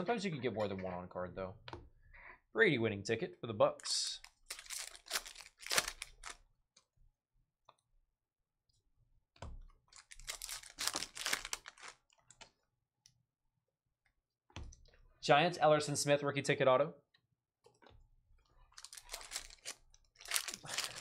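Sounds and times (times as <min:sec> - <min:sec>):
cards rustling: 0:04.2 - 0:06.4, 0:09.9 - 0:12.1, 0:18.7 - 0:21.0
foil wrapper tearing and crinkling: 0:04.4 - 0:06.4, 0:09.9 - 0:12.0, 0:18.8 - 0:21.0.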